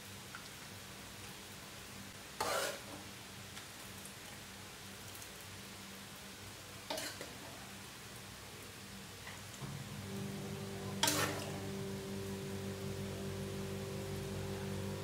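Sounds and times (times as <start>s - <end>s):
faint steady hiss: 0.0s - 15.0s
metal spoon stirring in a bowl: 2.4s - 2.8s.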